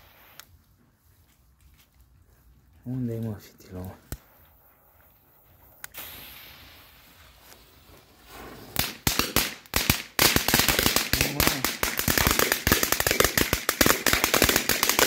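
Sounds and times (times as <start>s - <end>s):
firework fuse hissing: 0.0s - 0.5s, 5.6s - 15.0s
firecrackers banging: 5.9s - 15.0s.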